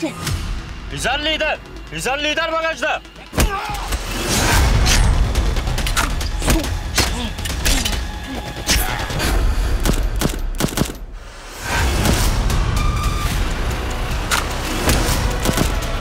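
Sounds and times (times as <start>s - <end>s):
dramatic score with low drone: 0.0s - 16.0s
gunshots: 9.8s - 11.1s, 14.4s - 16.0s.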